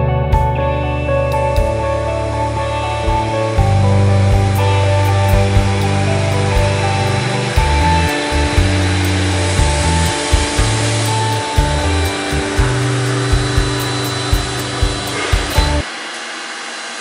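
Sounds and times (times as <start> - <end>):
bass line: 0.0 - 15.8
sustained tones: 0.0 - 16.4
drum hits: 3.1 - 15.8.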